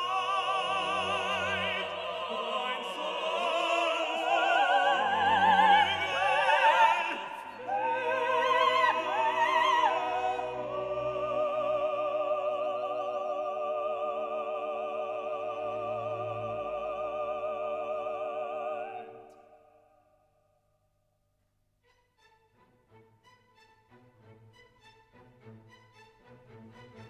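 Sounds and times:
operatic singing with vibrato: 0.0s - 20.0s.

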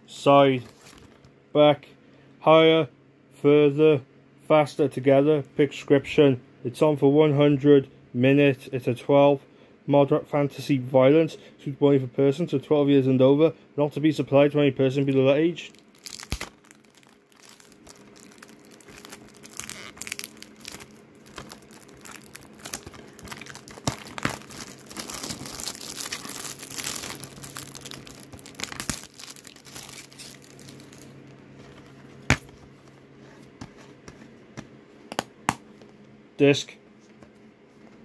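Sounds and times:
plastic shrink-wrap crinkling: 15.6s - 31.9s.

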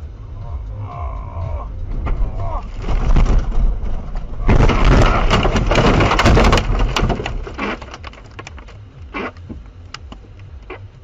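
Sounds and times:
debris knocking and rattling: 1.8s - 8.8s
car crashing into trees: 1.9s - 8.3s.

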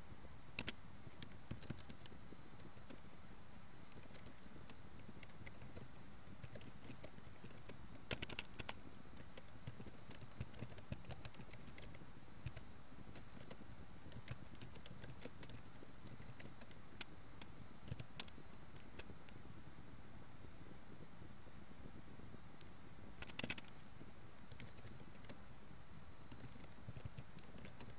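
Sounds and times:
faint hiss: 0.0s - 27.9s
keyboard key clicks: 6.4s - 12.6s, 23.2s - 23.7s.

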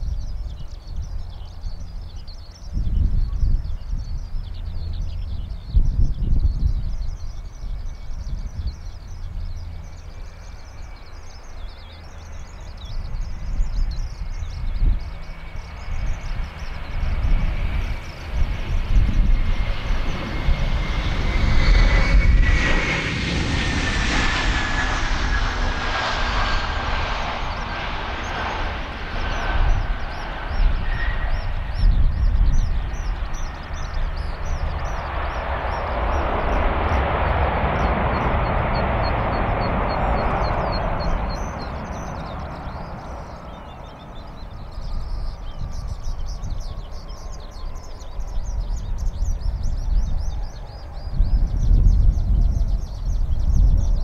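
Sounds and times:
birds chirping: 0.0s - 54.0s
wind rumbling on microphone: 0.0s - 54.0s
jet engines whining: 6.3s - 54.0s
reverse thrust engine roar: 9.1s - 49.4s.

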